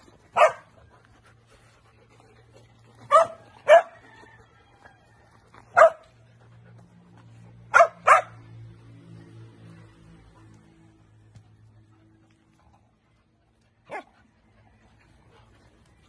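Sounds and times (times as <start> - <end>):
dogs barking: 0.3 - 0.8, 3.0 - 4.1, 5.7 - 6.2, 7.6 - 8.6, 13.8 - 14.2.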